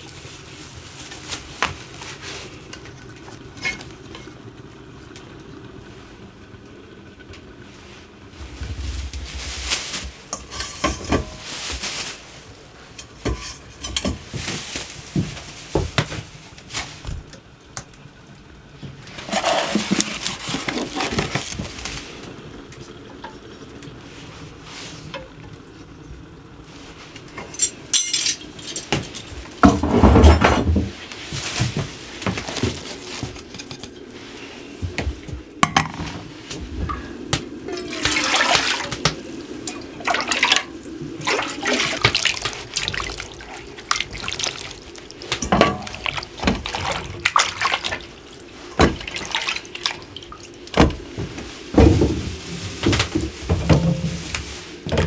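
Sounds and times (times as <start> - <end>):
dishes pots and cutlery clattering: 10.3 - 11.4, 13.0 - 14.4, 27.4 - 30.8.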